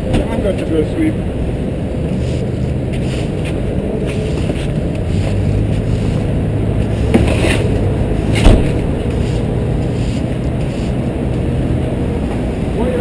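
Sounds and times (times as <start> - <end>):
road traffic rumble: 0.0 - 13.0
loud thump: 8.3 - 9.0.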